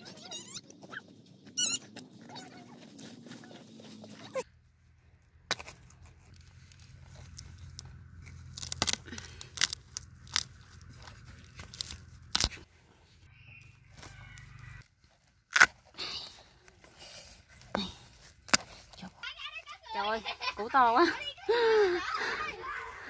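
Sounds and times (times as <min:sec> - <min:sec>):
soil and roots crunching: 0:01.8 - 0:20.9
machete chopping soil: 0:08.4 - 0:10.5, 0:11.5 - 0:12.6.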